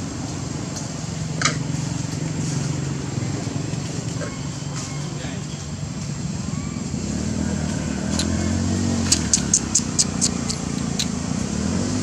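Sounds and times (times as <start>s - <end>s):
vehicle engine running: 0.0s - 12.0s
sharp high clicks: 9.0s - 11.2s.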